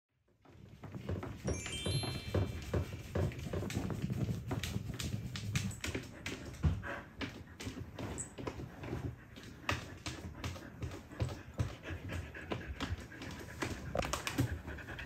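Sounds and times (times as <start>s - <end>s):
chime-like jingle notes: 1.4s - 3.3s.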